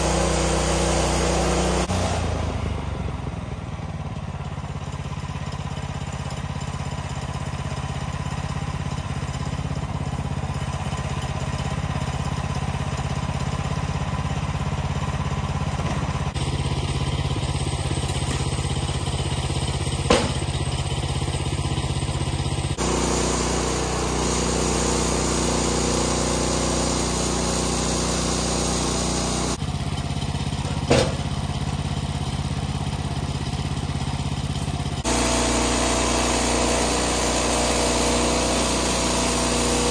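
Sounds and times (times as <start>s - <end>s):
sawmill gas engine running: 0.0s - 39.9s
sharp knocks: 20.1s - 20.5s.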